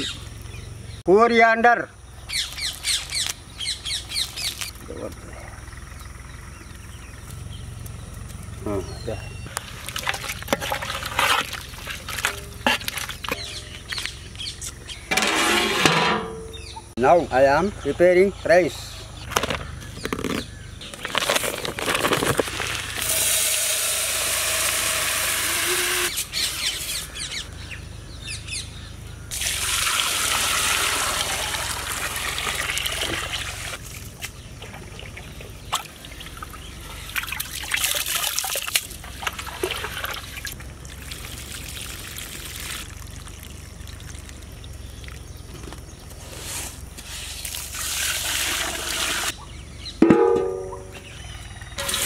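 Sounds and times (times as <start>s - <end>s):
water pouring: 9.6s - 13.8s, 29.3s - 33.9s, 34.6s - 45.4s, 47.4s - 49.4s.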